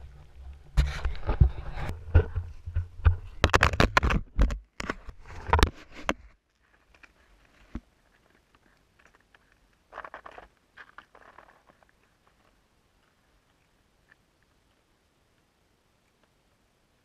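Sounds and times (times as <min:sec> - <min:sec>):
knocks and rustling on microphone: 0:00.7 - 0:06.4.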